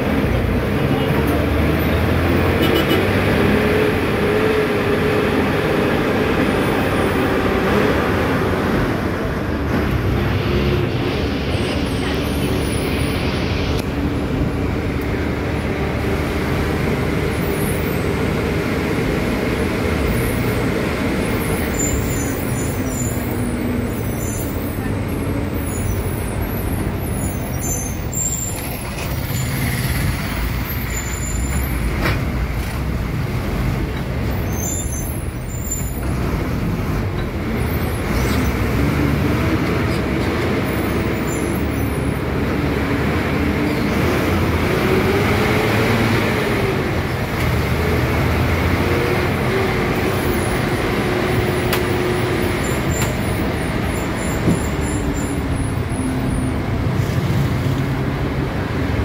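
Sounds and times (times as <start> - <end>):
bus diesel engine rumbling: 0.0 - 59.0
road noise: 0.0 - 59.0.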